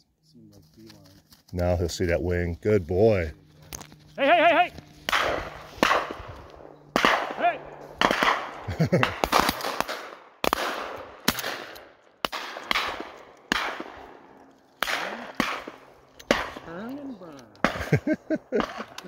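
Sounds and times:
shotgun shots: 0:05.0 - 0:16.7, 0:17.6 - 0:18.0, 0:18.6 - 0:19.0.

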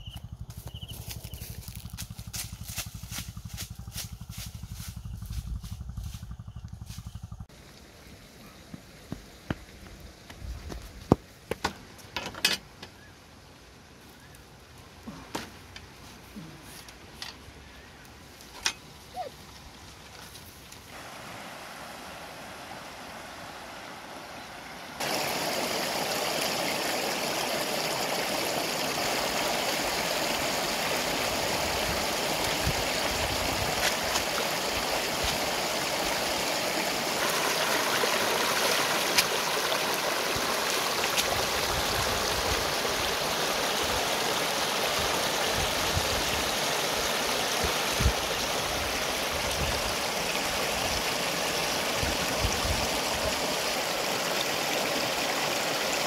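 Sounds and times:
river rapids rushing: 0:24.9 - 0:45.7.

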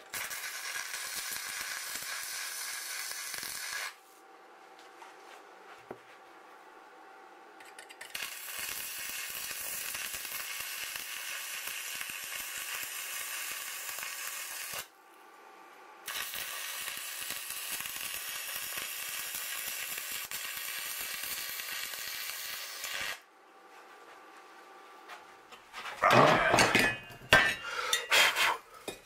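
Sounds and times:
arc welding crackling sizzle: 0:00.0 - 0:04.2, 0:07.9 - 0:15.1, 0:16.0 - 0:23.3.

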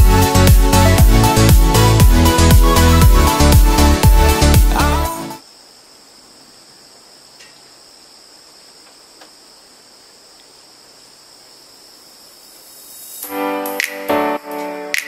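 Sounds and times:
high-pitched insect drone: 0:00.0 - 0:14.4
faint ticks: 0:08.8 - 0:09.4.

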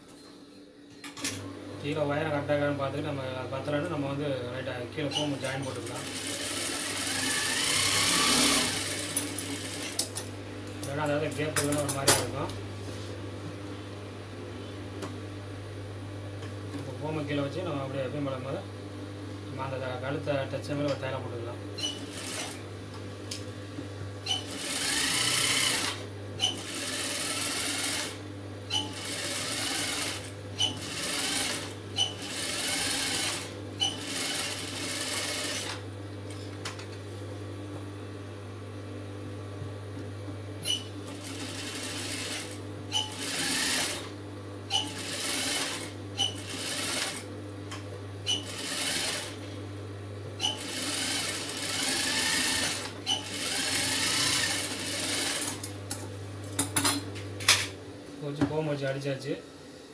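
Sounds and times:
sewing machine low hum: 0:01.3 - 0:12.5, 0:21.7 - 0:23.0, 0:24.2 - 0:36.3, 0:40.6 - 0:49.6, 0:50.3 - 0:55.8
sewing machine stitching: 0:05.2 - 0:10.1, 0:24.3 - 0:35.8, 0:40.7 - 0:44.1, 0:44.7 - 0:47.3, 0:48.2 - 0:49.4, 0:50.4 - 0:55.7.

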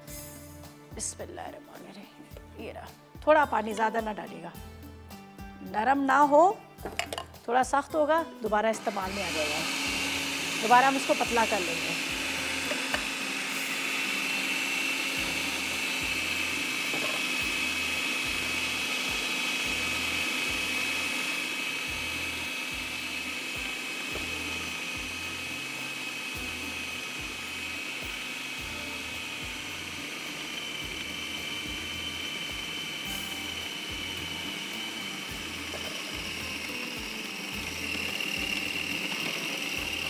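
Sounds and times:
food processor motor whining: 0:08.7 - 0:40.0.

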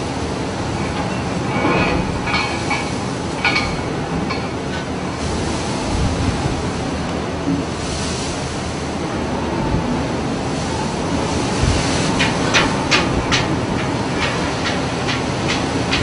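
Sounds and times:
heavy waves breaking: 0:00.0 - 0:16.0
loud wind rushing: 0:05.0 - 0:16.0.

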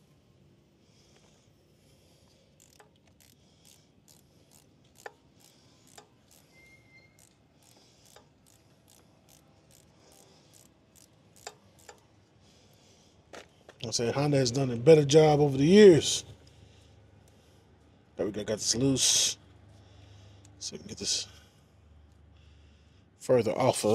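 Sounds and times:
hand tool clicks and ticks: 0:02.6 - 0:12.1.

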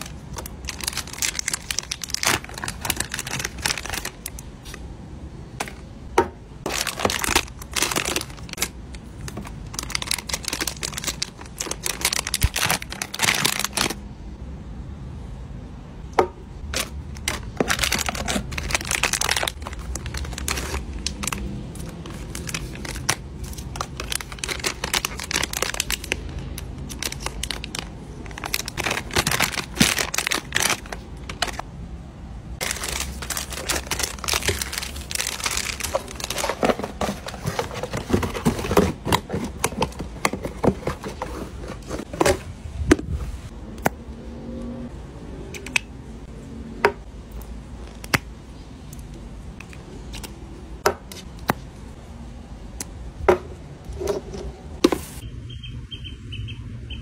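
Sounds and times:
plastic and cardboard crinkling: 0:00.0 - 0:04.9, 0:06.6 - 0:14.0, 0:16.6 - 0:31.7, 0:32.6 - 0:43.0, 0:53.9 - 0:55.2.

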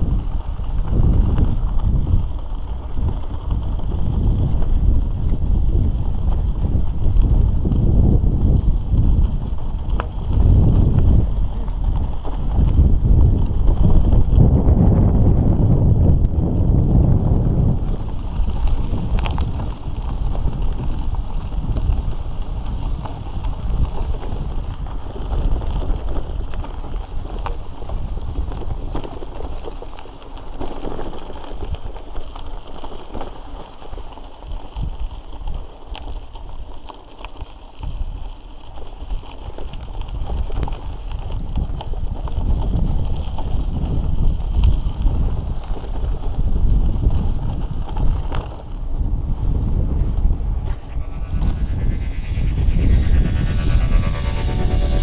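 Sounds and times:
wind buffeting microphone: 0:00.0 - 0:27.2, 0:46.4 - 0:55.0
bike tyres rumbling on gravel: 0:00.0 - 0:50.6.

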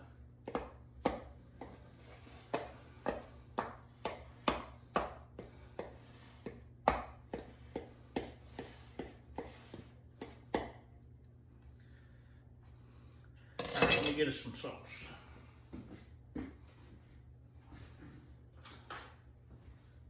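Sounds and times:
spatula chopping spaghetti in bowl: 0:00.4 - 0:10.9.

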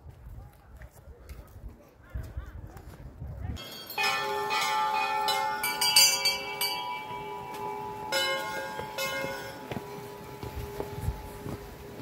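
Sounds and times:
metal temple bells ringing: 0:03.6 - 0:12.0.

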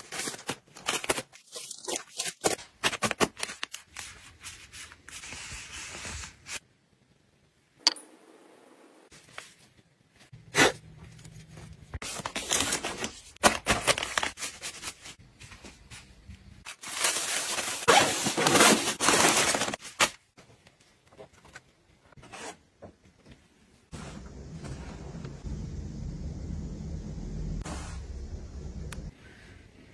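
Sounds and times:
plastic packets crinkling: 0:16.7 - 0:20.2.

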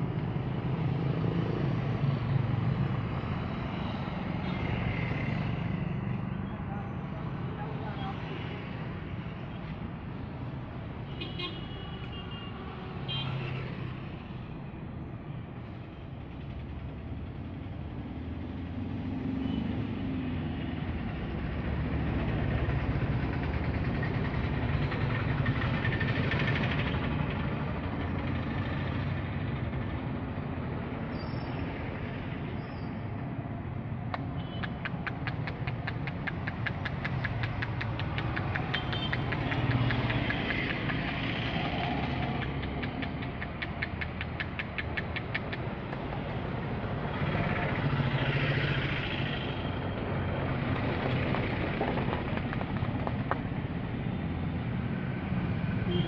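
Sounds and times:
road traffic rumble: 0:00.0 - 0:56.0
fast regular clatter: 0:50.5 - 0:53.6.

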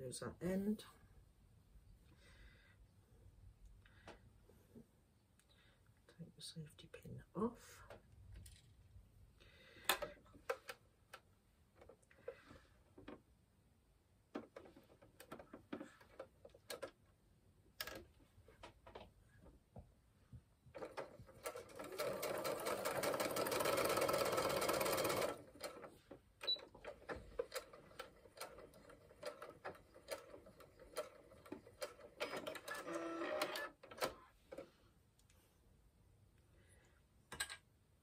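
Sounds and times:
sewing machine stitching: 0:20.8 - 0:34.6.

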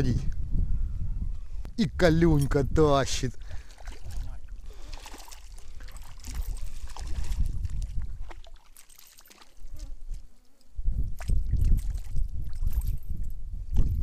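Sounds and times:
water sloshing and splashing: 0:03.4 - 0:10.3, 0:11.2 - 0:14.0.

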